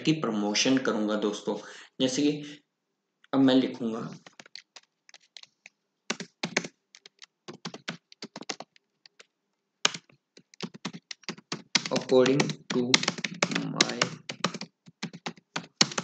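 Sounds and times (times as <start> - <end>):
computer keyboard typing: 4.2 - 16.0.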